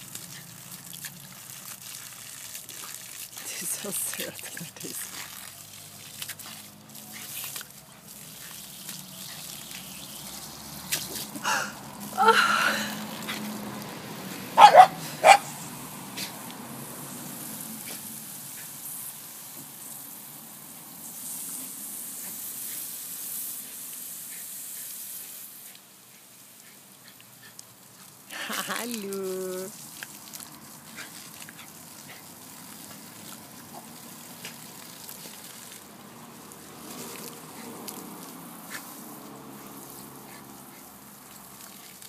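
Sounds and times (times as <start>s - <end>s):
water jet spraying: 0.0s - 42.0s
dog barking: 14.6s - 15.5s
dog yelping: 14.6s - 15.5s.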